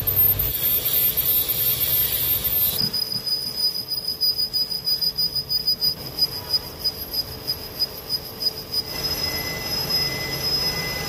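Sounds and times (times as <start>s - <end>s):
lathe cutting metal with hiss: 0.0s - 3.5s
high-pitched lathe squeal: 0.0s - 11.0s.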